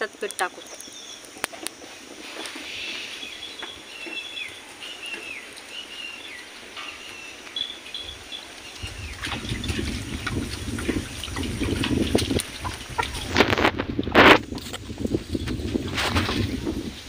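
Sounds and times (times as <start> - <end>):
low rumbling noise: 6.2 - 17.0.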